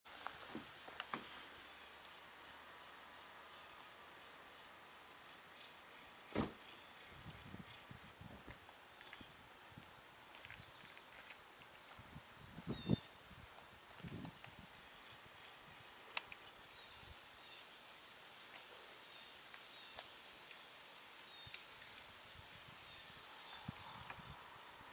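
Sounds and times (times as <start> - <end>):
insects chirping in grass: 0.1 - 24.9
short knocks: 6.3 - 6.6.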